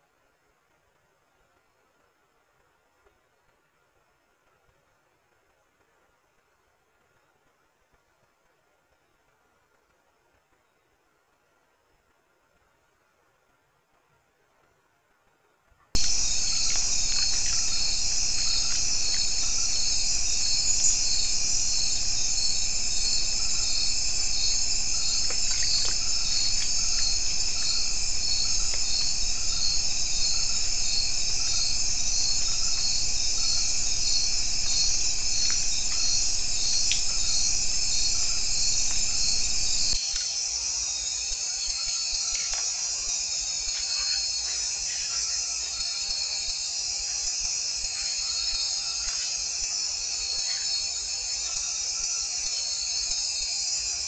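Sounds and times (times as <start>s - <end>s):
cricket pulsing call: 16.0s - 54.0s
crickets trilling: 16.0s - 54.0s.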